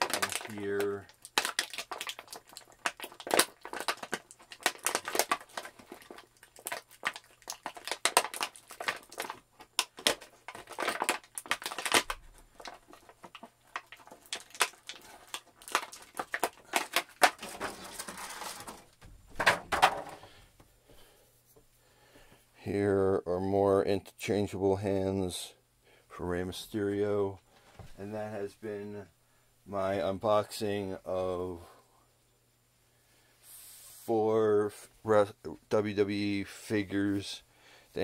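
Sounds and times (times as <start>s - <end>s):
plastic packaging crinkling: 0.0s - 20.2s.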